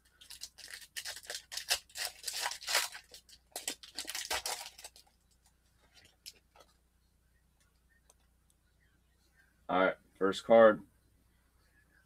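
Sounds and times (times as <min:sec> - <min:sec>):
foil wrapper tearing and crinkling: 0:00.1 - 0:05.2
faint rustles and clicks: 0:04.6 - 0:06.8.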